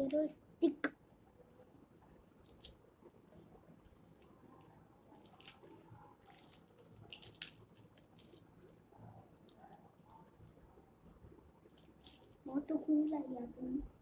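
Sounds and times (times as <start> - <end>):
plastic wrapper crinkling: 2.4 - 8.8, 11.8 - 12.6.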